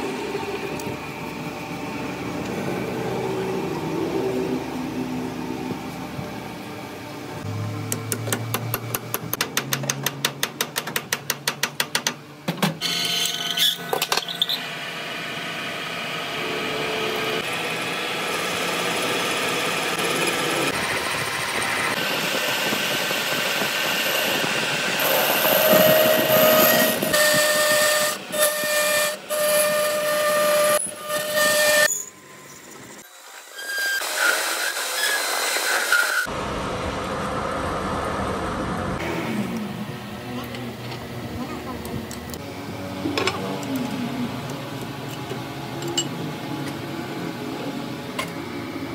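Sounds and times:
metal lathe cutting steel: 0:12.8 - 0:36.6.

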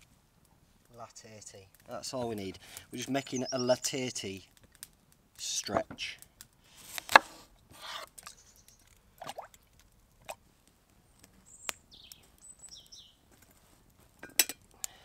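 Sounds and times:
knife cutting on wooden board: 0:06.9 - 0:08.1
faint high bird chirps: 0:08.3 - 0:08.9, 0:11.4 - 0:13.2
metal pot handled: 0:14.2 - 0:14.6.

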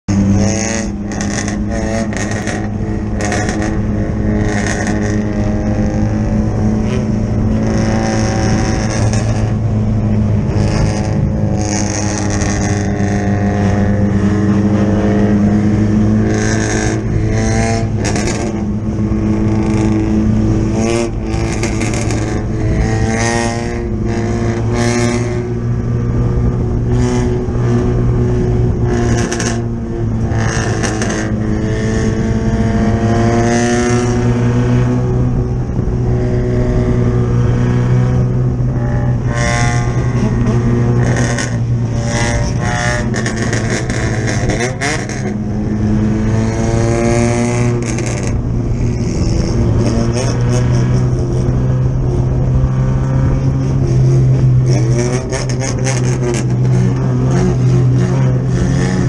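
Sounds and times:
race car engine running: 0:00.0 - 0:59.0.

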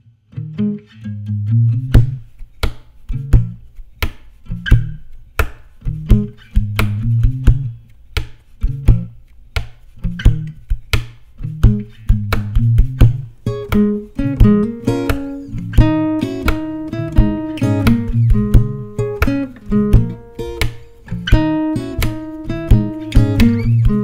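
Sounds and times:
acoustic guitars playing: 0:00.1 - 0:24.0
percussive slap on guitar: 0:01.8 - 0:24.0.

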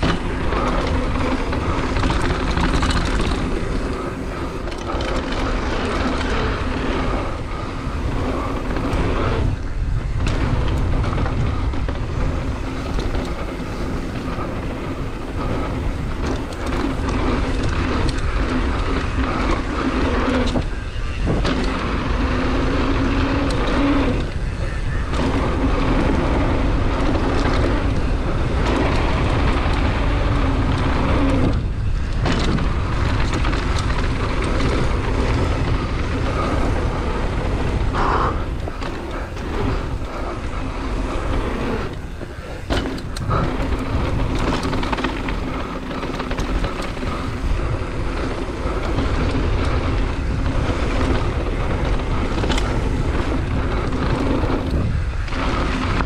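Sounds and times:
mountain bike rattling: 0:00.0 - 0:56.0
tyres rolling on dirt trail: 0:00.0 - 0:56.0
wind rushing over microphone: 0:00.0 - 0:56.0.

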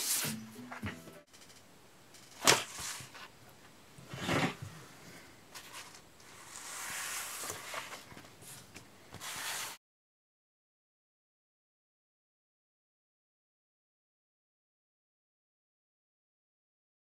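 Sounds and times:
griptape sheet rustling scrape: 0:00.0 - 0:00.4, 0:02.4 - 0:03.3, 0:05.5 - 0:09.8.

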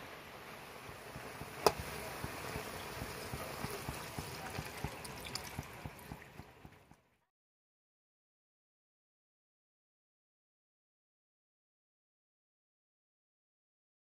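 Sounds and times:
curry bubbling in pot: 0:00.0 - 0:07.0.

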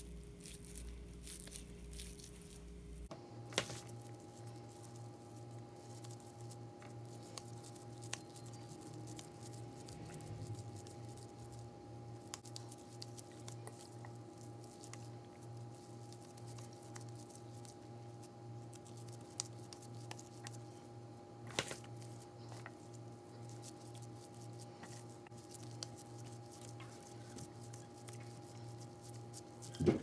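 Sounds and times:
low pulsing hum: 0:00.0 - 0:19.0
hands kneading wet ground meat: 0:00.0 - 0:29.8.

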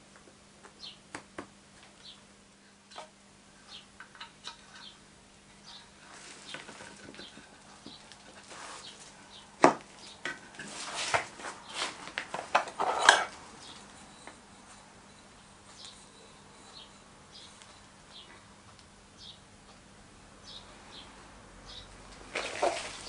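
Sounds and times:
light taps and rustles: 0:06.1 - 0:12.8
wooden scraping and scuffing: 0:10.6 - 0:13.2, 0:22.3 - 0:23.0.

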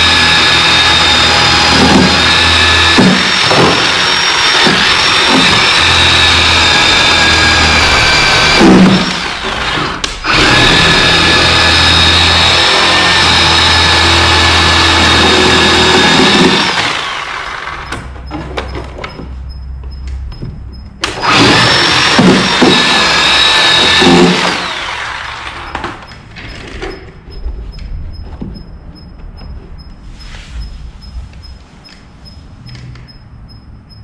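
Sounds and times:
electric chainsaw cutting wood: 0:00.0 - 0:17.9, 0:21.0 - 0:26.1
saw and wood knocking and rattling: 0:00.0 - 0:29.9.

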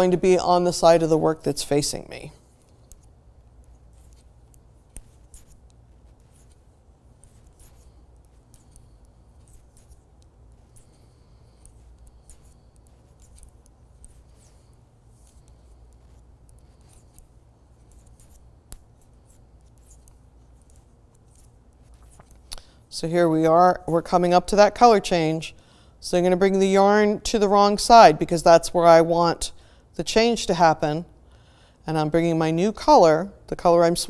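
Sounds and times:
low room hum: 0:00.0 - 0:34.0.

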